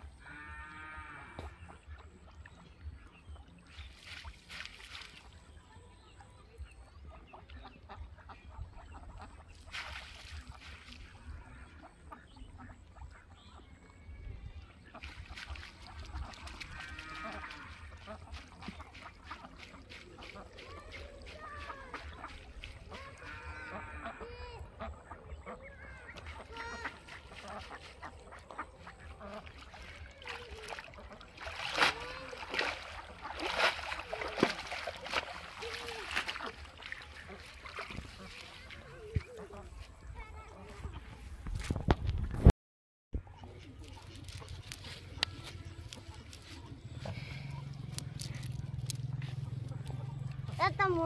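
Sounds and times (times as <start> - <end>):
ducks quacking: 0.0 - 41.9, 43.2 - 51.0
water splashing and dripping: 1.4 - 6.5, 8.6 - 13.3, 14.4 - 40.5, 43.4 - 51.0
wind rumble on microphone: 40.8 - 42.5.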